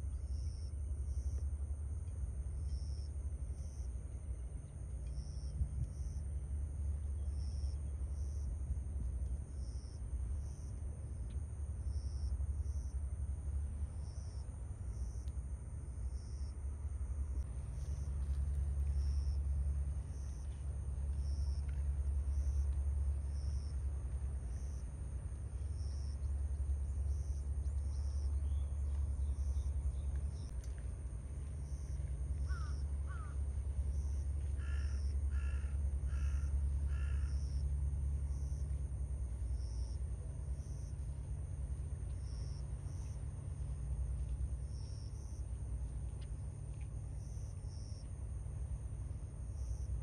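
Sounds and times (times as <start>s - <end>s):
crow cawing: 32.5s - 33.4s, 34.6s - 37.4s.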